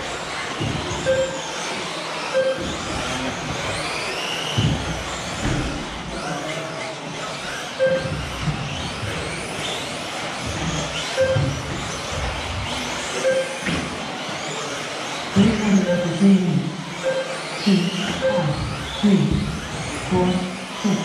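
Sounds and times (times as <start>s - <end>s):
rc car motors whining: 0.0s - 21.0s
short electronic beeps: 1.0s - 1.4s, 2.3s - 2.7s, 7.8s - 8.2s, 11.2s - 11.6s, 13.2s - 13.7s, 15.4s - 16.2s, 17.0s - 19.0s.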